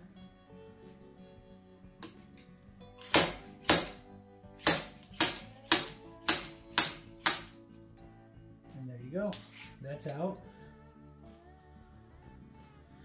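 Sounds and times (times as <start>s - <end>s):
slide hammer metallic clacks: 3.0s - 4.0s, 4.6s - 7.6s.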